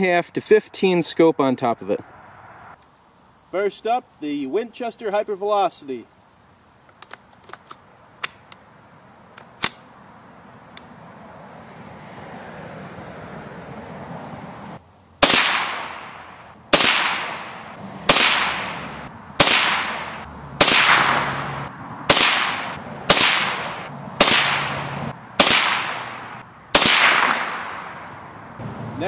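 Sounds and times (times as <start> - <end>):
rifle shots echoing: 15.2 - 28.2.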